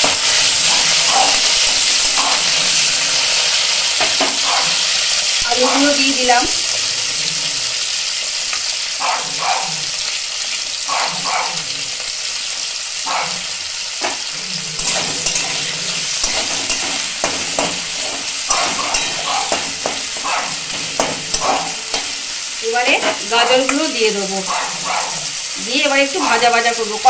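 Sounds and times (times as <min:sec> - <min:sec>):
vegetables sizzling in oil: 0:00.0 - 0:27.0
spatula scraping and stirring: 0:14.0 - 0:23.9.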